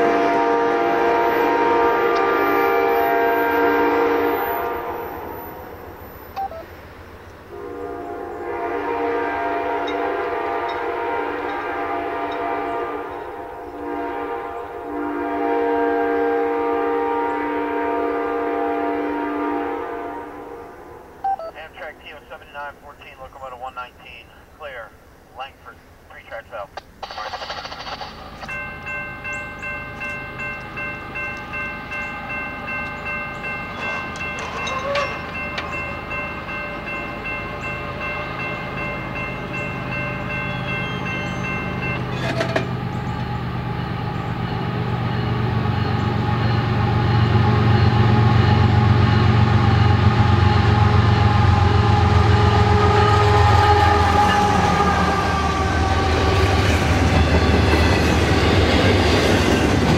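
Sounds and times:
locomotive horn chord: 0:00.0 - 0:05.9, 0:07.5 - 0:21.2, 0:28.5 - 0:59.9
freight cars rolling by: 0:27.1 - 0:59.9.

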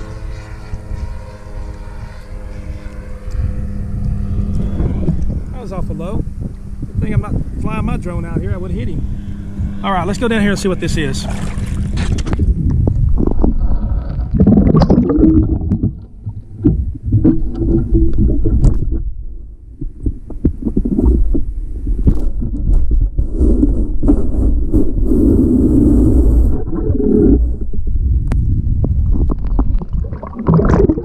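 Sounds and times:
low underwater rumble: 0:00.0 - 0:31.0
underwater knocks and clicks: 0:11.8 - 0:19.2, 0:19.8 - 0:24.3, 0:26.6 - 0:31.0.

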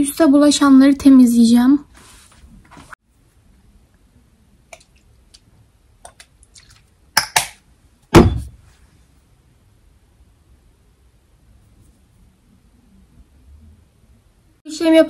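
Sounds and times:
low thud: 0:08.1 - 0:08.6
knock: 0:08.2 - 0:08.6.

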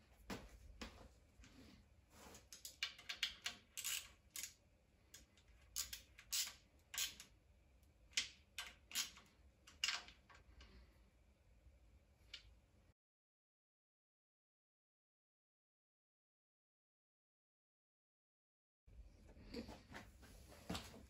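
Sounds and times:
ratchet wrench clicking: 0:02.6 - 0:04.6, 0:05.8 - 0:07.3.

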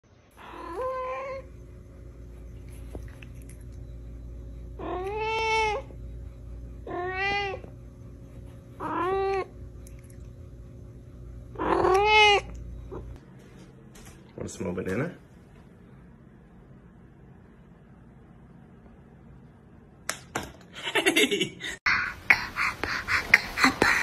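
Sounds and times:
cat meowing: 0:06.9 - 0:07.6, 0:11.6 - 0:12.5.

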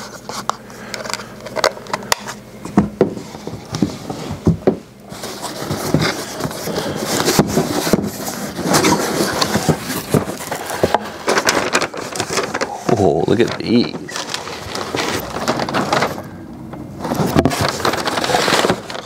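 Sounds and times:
cardboard rubbing and scraping: 0:03.0 - 0:16.4, 0:17.0 - 0:19.0.

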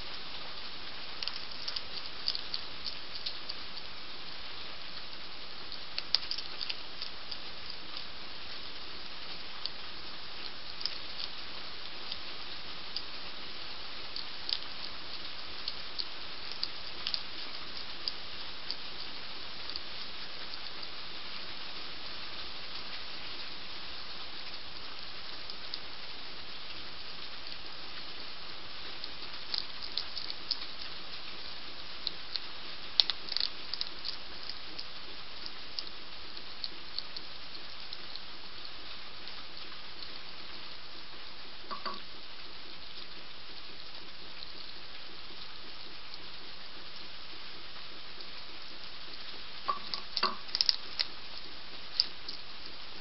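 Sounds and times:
heavy rain: 0:00.0 - 0:53.0
hedgehog crunching kibble: 0:00.1 - 0:03.9, 0:05.0 - 0:21.5, 0:27.2 - 0:40.7, 0:48.2 - 0:52.8.

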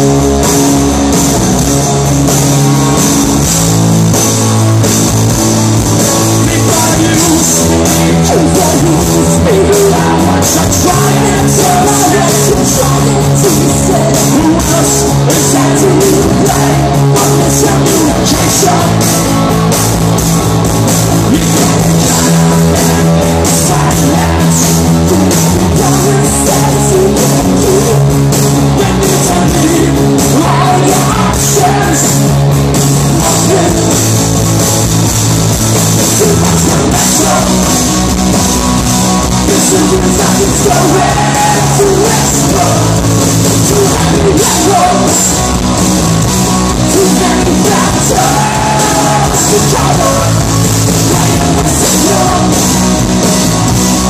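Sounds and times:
punk rock band playing: 0:00.0 - 0:54.0
person singing: 0:06.1 - 0:20.0, 0:21.2 - 0:32.4, 0:33.0 - 0:34.2, 0:36.0 - 0:45.8, 0:46.4 - 0:53.3.

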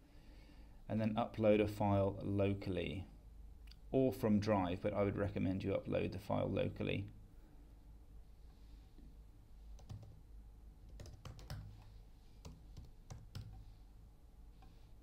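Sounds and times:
keyboard keystroke clicks: 0:10.9 - 0:11.8.

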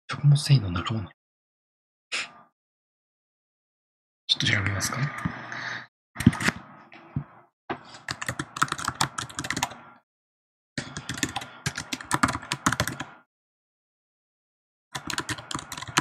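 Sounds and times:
typing on keyboard: 0:08.0 - 0:09.9, 0:10.8 - 0:13.2, 0:14.9 - 0:16.0.

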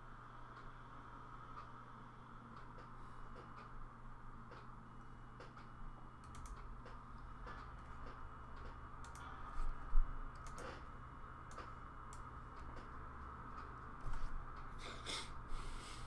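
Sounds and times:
steady low hum: 0:00.0 - 0:16.0
keyboard and mouse clicks: 0:05.4 - 0:10.9, 0:11.5 - 0:14.7.

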